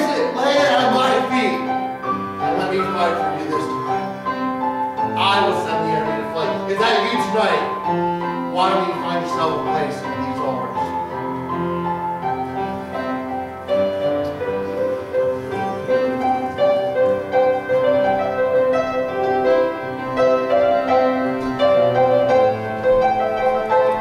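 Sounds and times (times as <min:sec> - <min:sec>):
piano melody over chords: 0:00.0 - 0:24.0.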